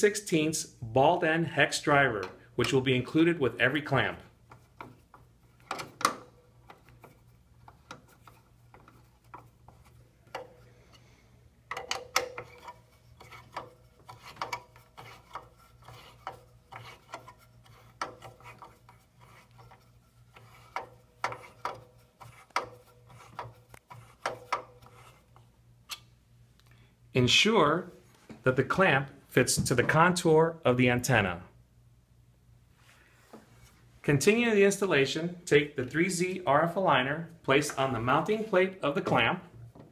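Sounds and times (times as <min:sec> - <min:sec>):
hex driver turning metal screw: 0:11.7 - 0:25.2.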